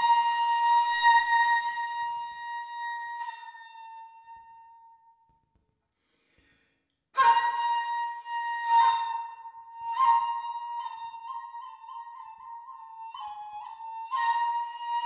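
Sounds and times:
shakuhachi long note: 0:00.0 - 0:05.3, 0:07.2 - 0:15.0.

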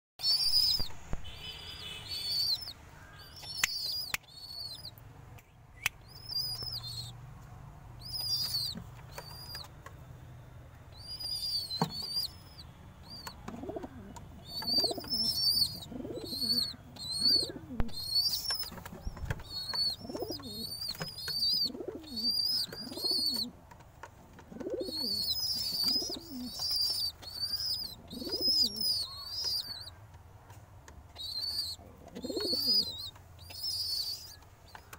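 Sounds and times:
birds chirping: 0:00.2 - 0:34.9
sharp clicks: 0:03.3 - 0:04.4
pigeons cooing: 0:13.4 - 0:18.4, 0:19.4 - 0:23.6, 0:24.5 - 0:30.0, 0:31.2 - 0:34.9.

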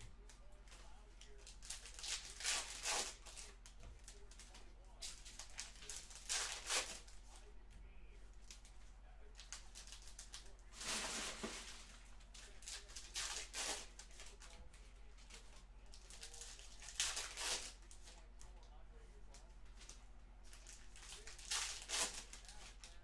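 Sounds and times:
card packs being torn open: 0:01.4 - 0:03.5, 0:05.1 - 0:07.1, 0:12.4 - 0:14.4, 0:16.0 - 0:17.8, 0:20.5 - 0:23.0.

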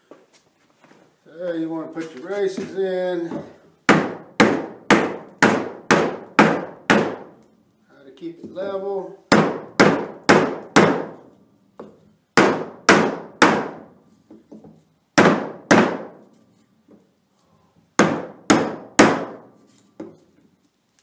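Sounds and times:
hammer striking wooden block: 0:03.9 - 0:07.4, 0:09.3 - 0:11.2, 0:11.8 - 0:14.6, 0:15.2 - 0:16.2, 0:18.0 - 0:20.2.

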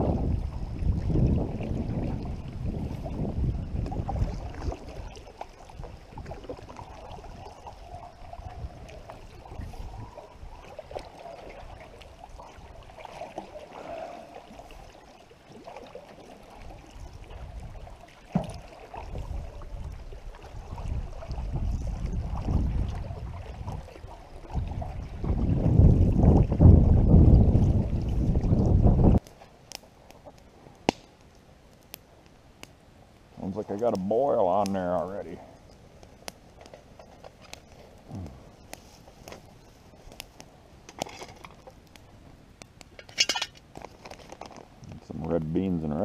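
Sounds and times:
wind buffeting microphone: 0:00.0 - 0:13.0, 0:16.6 - 0:29.2
water swishing around canoe: 0:00.0 - 0:32.2, 0:32.9 - 0:46.0.

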